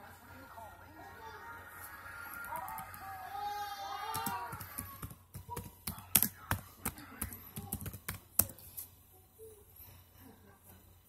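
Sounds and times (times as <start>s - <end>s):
fingers tapping on phone: 4.1s - 8.7s.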